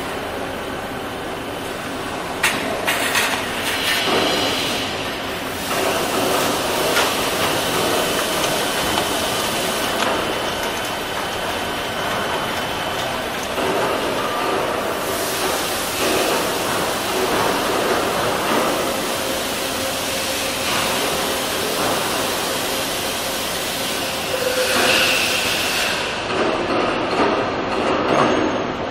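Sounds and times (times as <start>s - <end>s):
coolant spray rushing: 2.7s - 26.2s.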